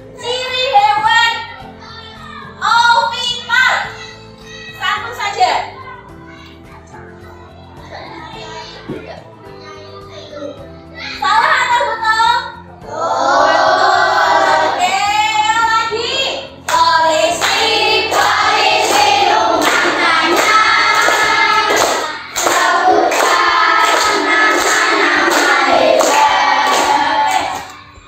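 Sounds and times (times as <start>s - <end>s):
children singing: 12.8s - 15.2s, 16.0s - 28.0s
rhythmic hand clapping: 16.6s - 28.0s.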